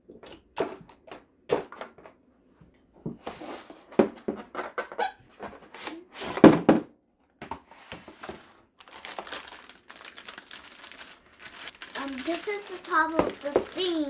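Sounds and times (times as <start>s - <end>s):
plastic bag crinkling: 8.8s - 14.0s.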